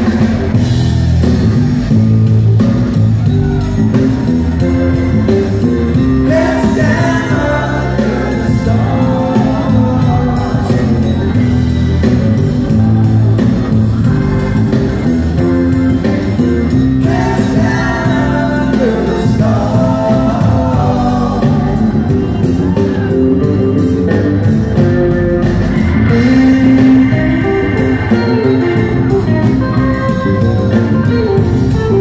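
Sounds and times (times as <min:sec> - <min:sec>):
live rock band playing: 0:00.0 - 0:32.0
women singing: 0:17.0 - 0:21.9.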